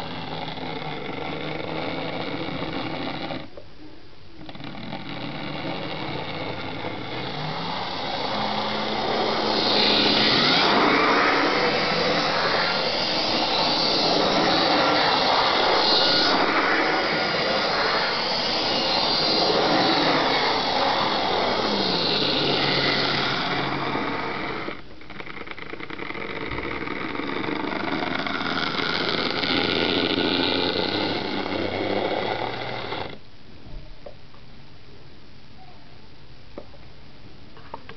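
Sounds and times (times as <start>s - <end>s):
electric motor whining: 0.0s - 3.5s, 4.5s - 24.9s, 26.4s - 33.2s
wheels rattling over rails: 5.6s - 24.8s.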